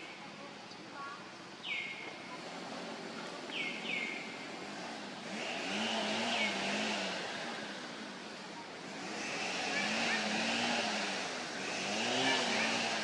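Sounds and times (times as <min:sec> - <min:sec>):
bird chirps: 0:01.6 - 0:02.2, 0:03.5 - 0:04.3
vehicle engine passing: 0:02.2 - 0:13.0.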